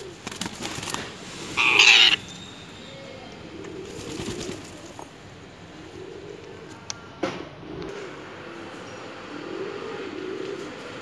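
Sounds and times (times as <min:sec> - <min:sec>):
pigeons cooing: 0:00.0 - 0:00.3, 0:01.0 - 0:02.2, 0:03.4 - 0:06.9, 0:09.2 - 0:11.0
parakeet wings flapping: 0:00.1 - 0:02.2, 0:04.0 - 0:04.8
parakeet harsh squawk: 0:01.6 - 0:02.2.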